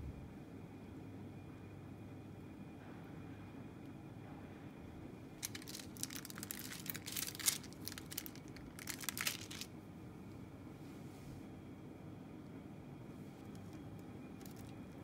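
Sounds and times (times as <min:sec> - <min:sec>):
plastic film crinkling: 0:05.4 - 0:09.7, 0:14.4 - 0:14.8.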